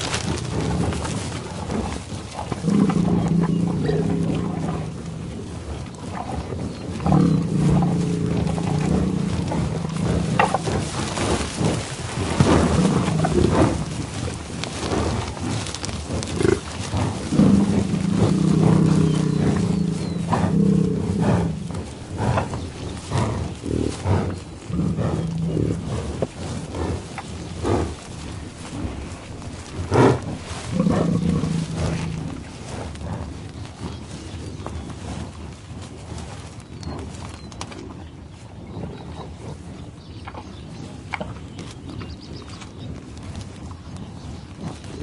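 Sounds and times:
grass snapping from grazing: 0.0 - 5.2, 7.0 - 34.8
animal sniffing: 0.0 - 34.2
bison grunting: 0.0 - 34.6.

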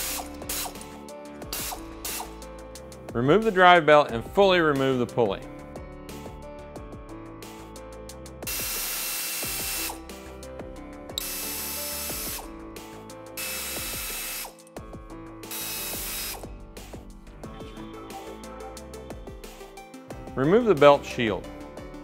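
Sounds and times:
pneumatic air ratchet spinning: 0.0 - 0.9, 1.5 - 2.4, 8.5 - 10.0, 11.2 - 12.5, 13.4 - 14.7, 15.4 - 16.5
background music: 0.0 - 22.0.

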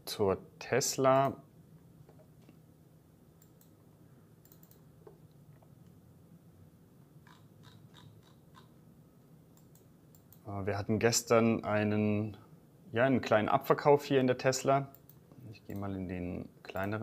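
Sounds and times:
low room hum: 0.0 - 17.0
computer mouse clicks: 3.4 - 3.8, 4.4 - 5.2, 7.2 - 8.7, 9.6 - 10.4, 14.9 - 15.9.

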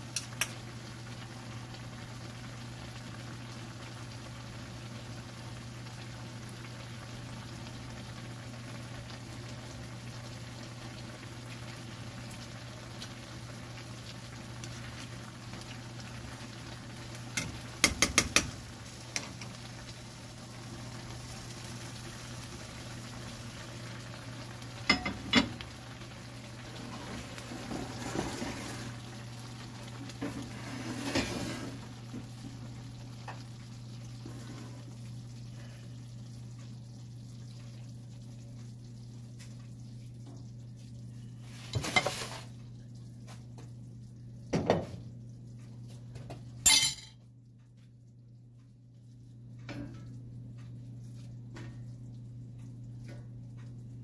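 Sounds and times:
stew sizzling in a wok: 0.0 - 43.8
spoon knocking against pan: 17.4 - 18.6.

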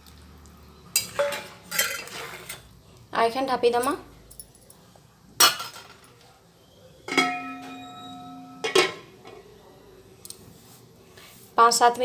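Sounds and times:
lid clinking: 7.1 - 9.1
lid ringing: 7.1 - 9.1
metal lid clanging on pan: 7.1 - 9.1.

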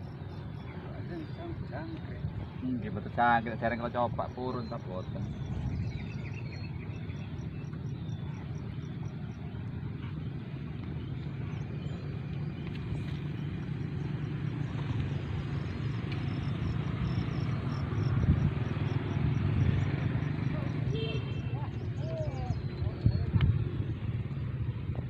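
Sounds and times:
low outdoor rumble: 0.0 - 25.0
faint high insect chirp: 13.5 - 21.4.

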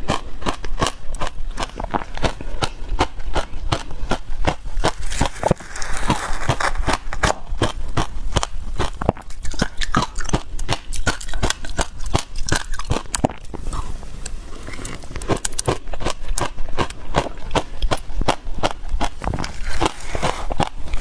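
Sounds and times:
frozen ice cracking and crunching: 4.8 - 8.1, 19.0 - 21.0.

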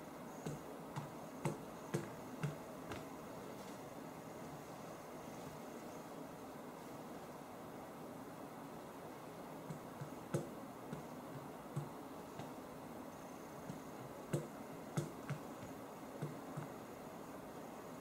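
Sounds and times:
steady hiss: 0.0 - 18.0
fingertips tapping touchscreens: 0.4 - 3.1, 9.6 - 12.6, 13.6 - 16.8.

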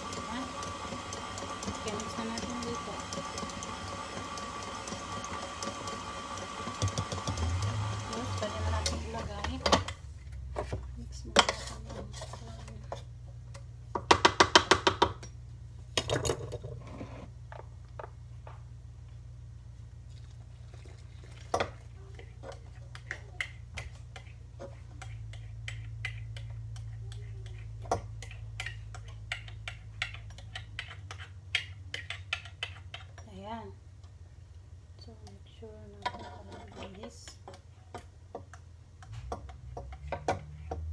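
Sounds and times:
stand mixer motor humming: 0.0 - 9.1.

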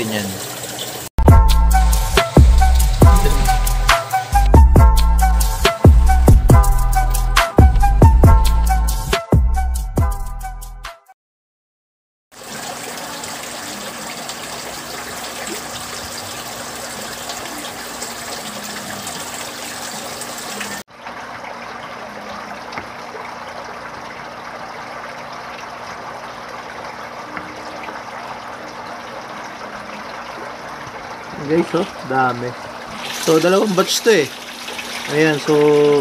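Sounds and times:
water running and splashing into tub: 0.0 - 4.4, 12.3 - 36.0.

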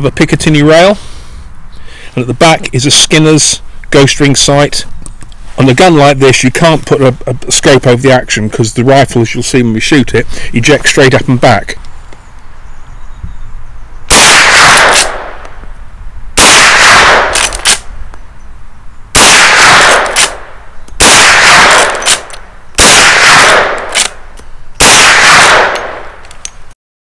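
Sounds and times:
rifle shots: 14.1 - 15.4, 16.4 - 17.9, 19.2 - 24.2, 24.8 - 26.2.

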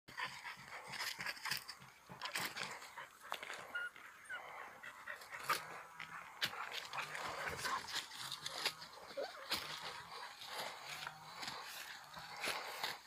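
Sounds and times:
dog panting: 0.1 - 13.0
dog whimpering: 3.4 - 5.6, 9.0 - 9.8.

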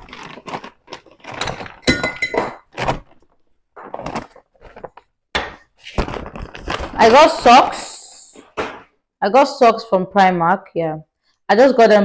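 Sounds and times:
shopping bag rustling: 0.0 - 8.8.

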